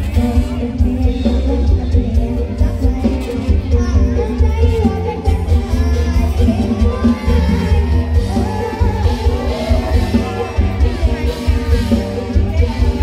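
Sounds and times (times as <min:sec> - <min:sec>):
live music over loudspeakers: 0:00.0 - 0:13.0
person singing: 0:00.0 - 0:13.0
heavy pulsing bass beat: 0:03.7 - 0:13.0.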